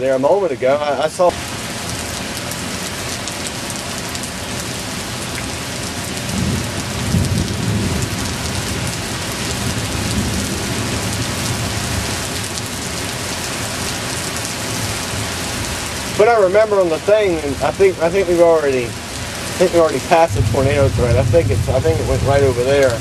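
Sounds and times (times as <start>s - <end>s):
heavy rain falling: 0.0s - 23.0s
rolling thunder rumble: 6.2s - 12.5s, 17.3s - 23.0s.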